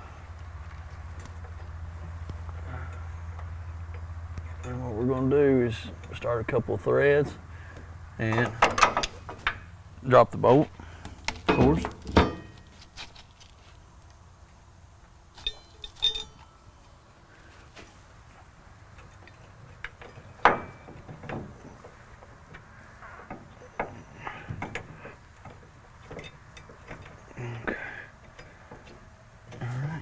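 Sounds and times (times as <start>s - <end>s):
metallic clinks of bolt handling: 15.4s - 16.7s.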